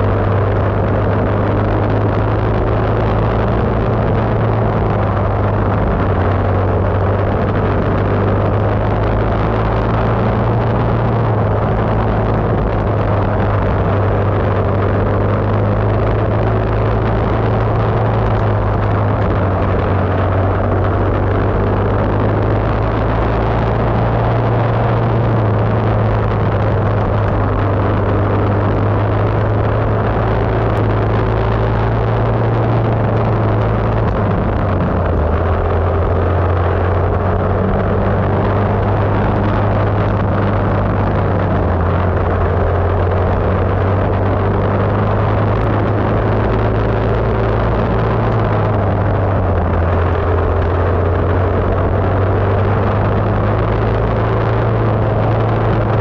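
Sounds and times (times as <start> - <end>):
kart engine running hard: 0.0 - 56.0
tyre noise: 0.0 - 56.0
wind rushing: 0.0 - 56.0.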